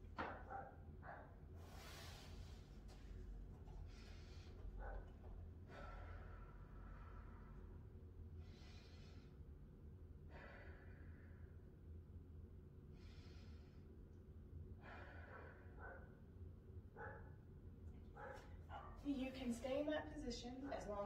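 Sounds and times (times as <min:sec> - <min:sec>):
low hum: 0:00.0 - 0:21.0
slow deep breathing: 0:01.6 - 0:12.1, 0:12.8 - 0:16.2.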